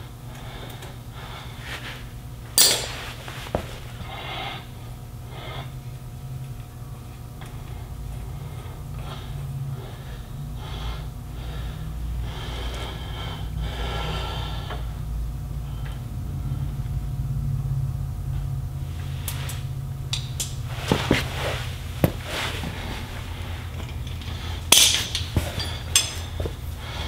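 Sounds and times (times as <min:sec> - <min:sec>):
steady low hum: 0:00.0 - 0:27.0
man breathing hard: 0:00.3 - 0:02.1, 0:03.5 - 0:05.9, 0:07.7 - 0:17.0, 0:20.9 - 0:27.0.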